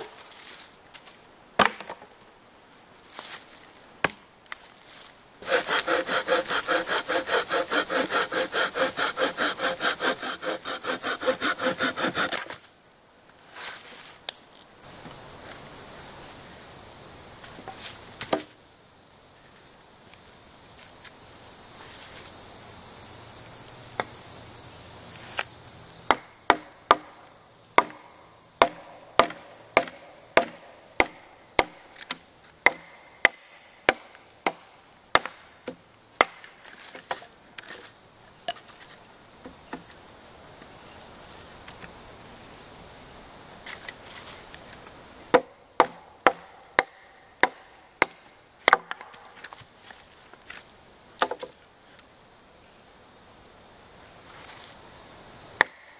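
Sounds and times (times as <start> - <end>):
knife chopping wood: 27.8 - 28.0, 28.6 - 36.4.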